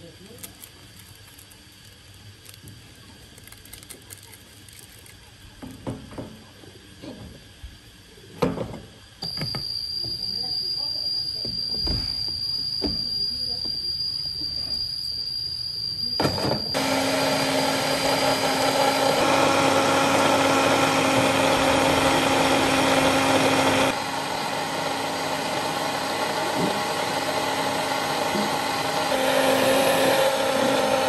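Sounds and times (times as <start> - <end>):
blender motor humming and grinding: 16.2 - 31.0.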